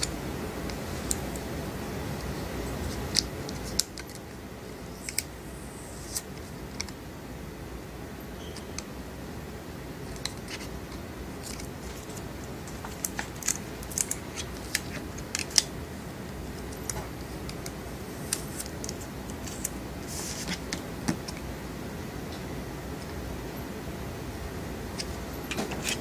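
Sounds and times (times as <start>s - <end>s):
steady low hum: 0.0s - 26.0s
plastic film clicks and crackles: 2.9s - 4.3s, 10.1s - 15.7s.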